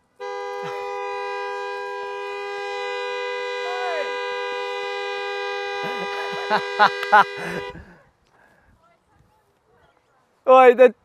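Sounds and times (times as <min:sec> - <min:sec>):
two-tone vehicle horn blast: 0:00.1 - 0:07.9
person shouting or laughing: 0:05.8 - 0:07.7.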